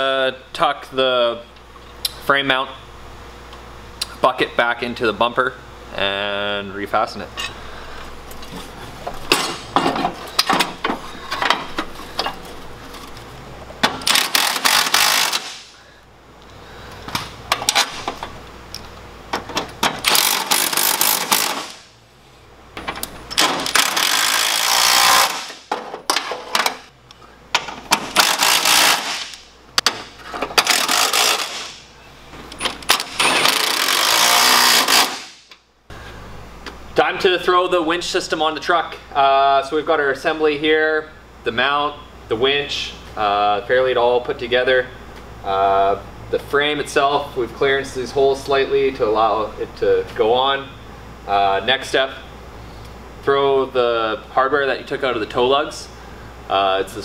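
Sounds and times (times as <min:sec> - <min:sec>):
impact driver hammering bolts: 0:13.8 - 0:15.6, 0:19.4 - 0:21.8, 0:22.8 - 0:26.8, 0:27.6 - 0:31.8, 0:32.9 - 0:35.4.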